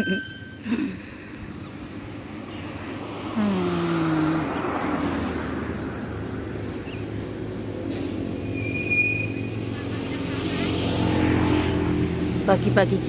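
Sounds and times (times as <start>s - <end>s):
vehicle passing by: 1.0s - 13.0s.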